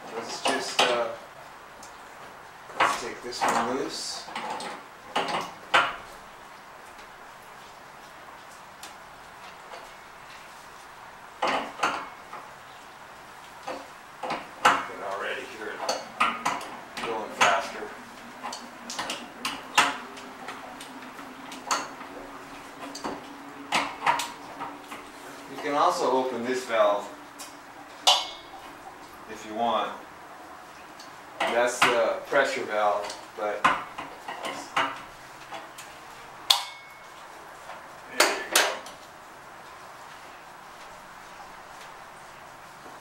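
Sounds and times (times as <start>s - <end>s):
faint steady hiss: 0.0s - 43.0s
faint steady hum: 0.0s - 43.0s
metallic clinks on plumbing: 36.5s - 37.2s.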